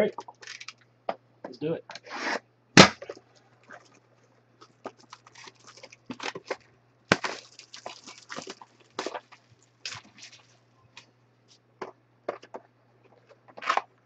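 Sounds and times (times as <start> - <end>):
plastic wrap crinkling and rustling: 3.0 - 11.1.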